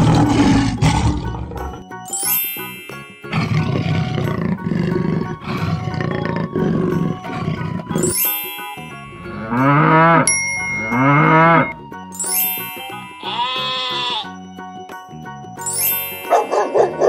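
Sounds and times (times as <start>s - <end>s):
cartoon big cat growling: 0.0s - 1.8s, 3.3s - 8.0s
light background music: 0.0s - 17.0s
bell-like ringing tone: 8.0s - 9.4s, 10.2s - 13.2s, 15.7s - 16.8s
cartoon cow mooing: 13.2s - 14.3s.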